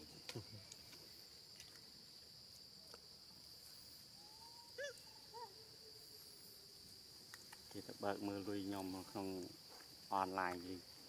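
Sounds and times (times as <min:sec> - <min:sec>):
faint insect drone: 0:00.0 - 0:11.0.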